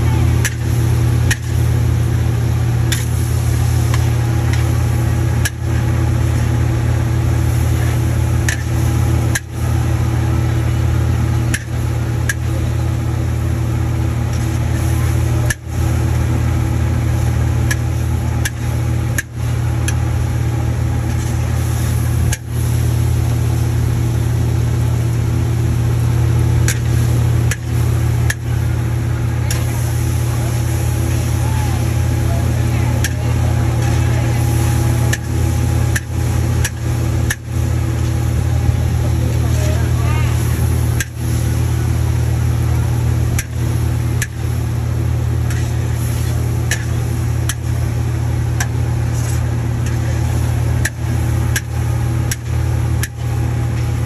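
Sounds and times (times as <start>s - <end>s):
low machine hum: 0.0s - 54.0s.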